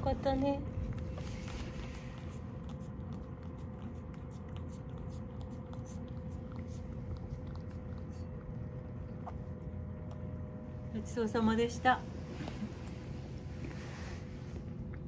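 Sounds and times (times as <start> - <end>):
steady low hum: 0.0 - 15.0
cat tongue clicking against bowl: 2.2 - 10.3.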